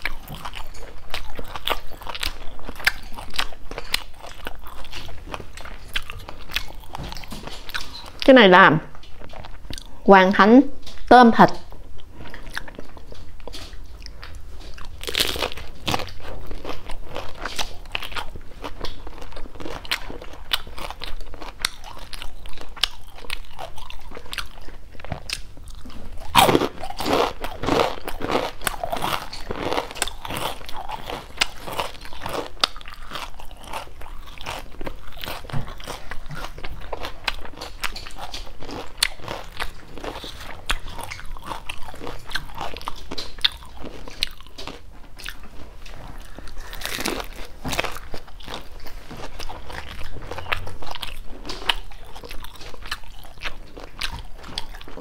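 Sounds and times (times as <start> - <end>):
crisp biting and crunchy chewing: 0.0 - 8.3, 11.7 - 55.0.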